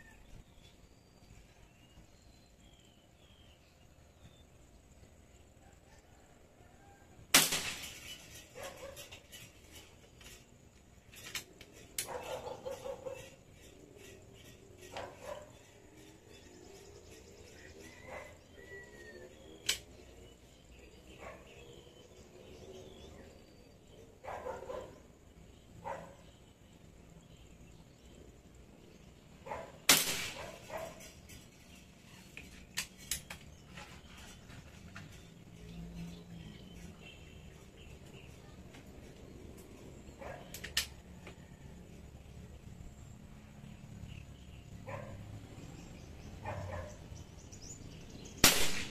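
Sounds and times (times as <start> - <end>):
rifle shot: 7.3 - 8.2, 29.9 - 30.7, 48.4 - 48.9
dog barking: 12.0 - 13.4, 14.9 - 15.6, 24.2 - 25.0, 25.8 - 26.3, 29.5 - 29.8, 40.2 - 40.5, 44.9 - 45.2, 46.4 - 47.0
sharp clicks: 40.5 - 41.0.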